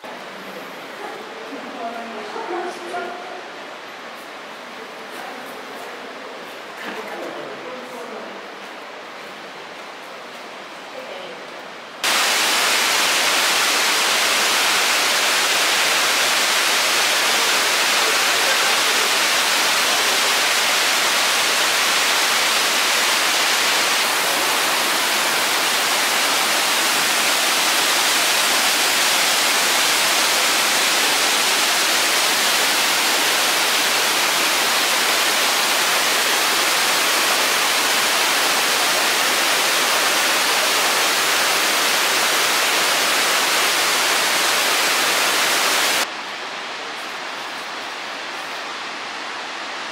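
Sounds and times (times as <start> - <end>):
waterfall rushing: 12.0 - 49.9.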